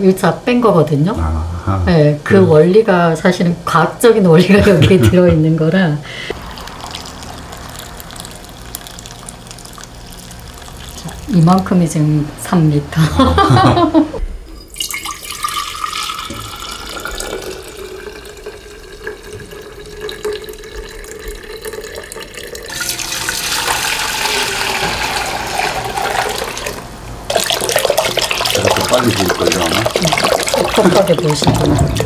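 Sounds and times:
broth pouring into a pot: 6.3 - 11.7, 14.6 - 32.0.

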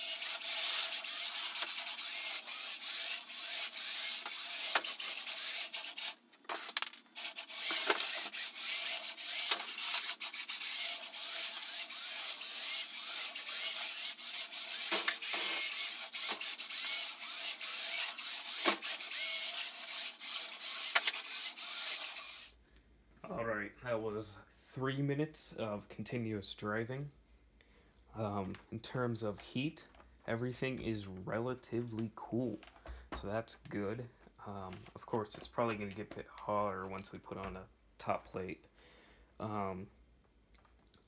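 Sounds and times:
robot motors whirring: 0.0 - 6.2, 7.2 - 22.5.

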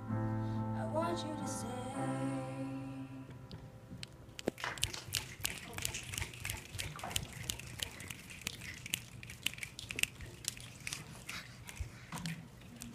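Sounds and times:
audience clapping: 4.6 - 8.1.

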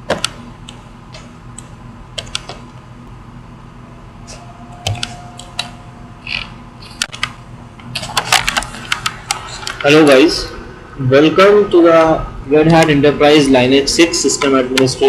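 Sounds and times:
low electrical hum: 0.0 - 15.0
computer mouse clicks: 0.1 - 2.7, 8.0 - 9.9.

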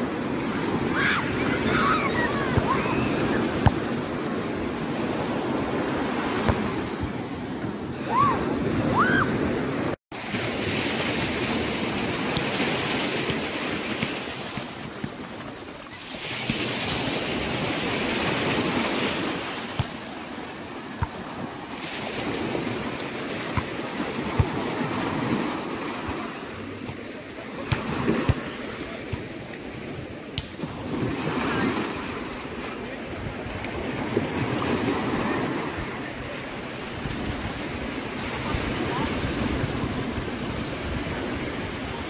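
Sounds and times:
small waves washing onto beach: 0.0 - 42.0
wind on microphone: 36.8 - 42.0.

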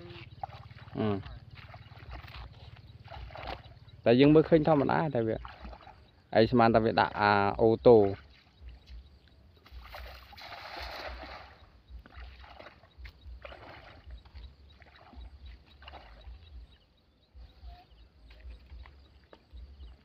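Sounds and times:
sloshing splashes of wading: 0.0 - 20.0
net splashing onto water: 0.4 - 3.7, 4.7 - 6.0, 9.6 - 14.2, 14.8 - 16.4.

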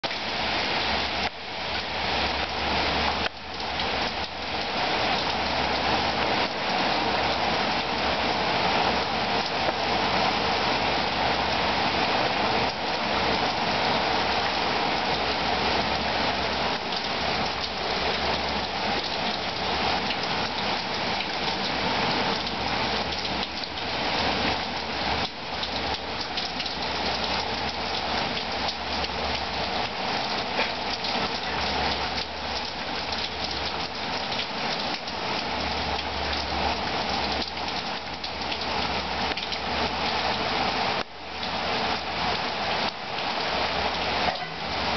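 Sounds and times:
heavy rain pouring on street and cars: 0.0 - 44.9.

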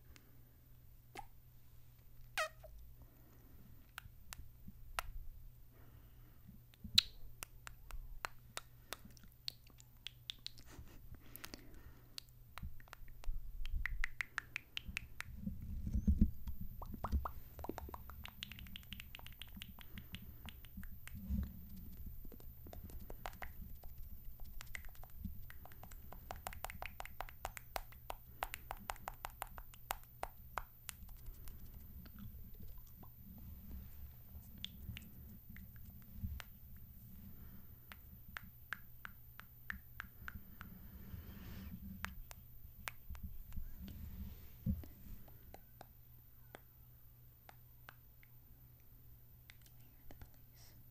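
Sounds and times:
breathing: 0.0 - 0.7, 3.0 - 3.8, 5.7 - 6.6, 10.7 - 12.2, 37.1 - 37.9, 40.2 - 42.0, 43.6 - 45.3, 50.5 - 50.9
kissing and lip smacking: 1.1 - 1.4, 2.2 - 2.8, 3.8 - 5.2, 6.7 - 33.2, 34.5 - 36.6, 37.9 - 40.7, 42.0 - 43.7, 45.2 - 46.7, 47.4 - 48.4, 49.4 - 50.5.

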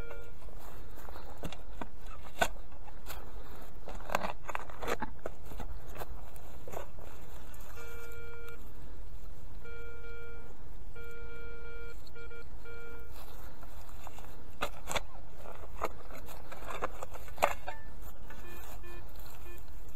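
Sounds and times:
metal detector beeping: 0.0 - 1.6, 7.6 - 8.6, 9.6 - 13.4, 17.5 - 19.9.

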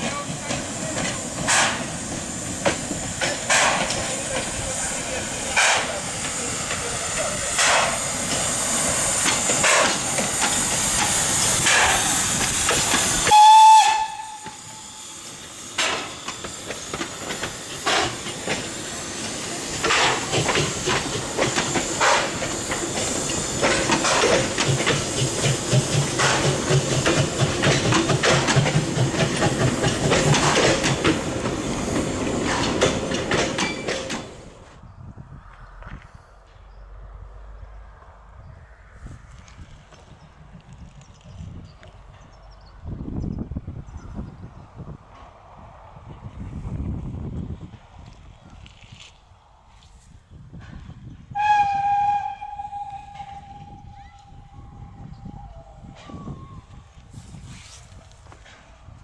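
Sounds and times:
loud steam hiss: 0.0 - 34.6, 51.3 - 58.0
steam whistle toot: 13.2 - 15.2, 51.3 - 55.6.

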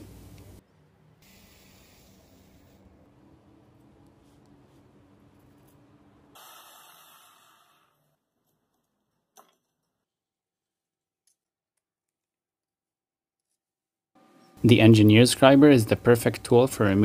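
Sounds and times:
brief hiss: 1.2 - 2.8.

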